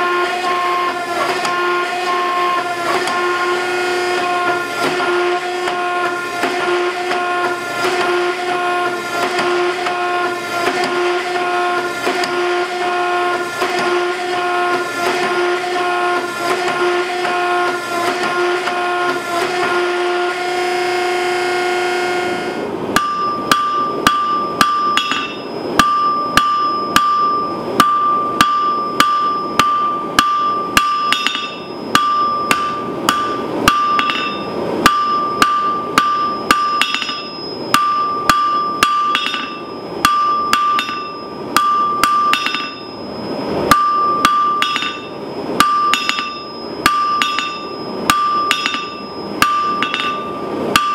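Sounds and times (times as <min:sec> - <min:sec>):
forging press humming: 0:00.0 - 0:50.9
hammer striking steel on anvil: 0:22.9 - 0:50.9
anvil ringing: 0:23.0 - 0:50.9.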